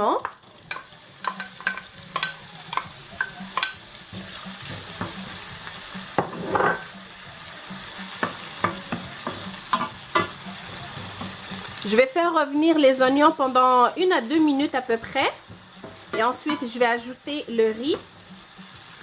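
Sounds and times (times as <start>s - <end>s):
onion sizzling in a pan: 0.0s - 19.0s
spoon knocking and scraping pan: 0.2s - 7.0s, 8.0s - 11.7s, 15.0s - 16.8s.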